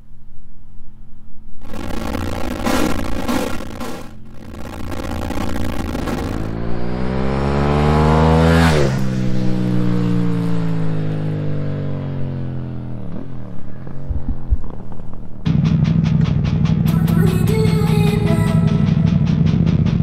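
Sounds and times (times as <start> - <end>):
motorcycle engine accelerating past: 6.4 - 14.9.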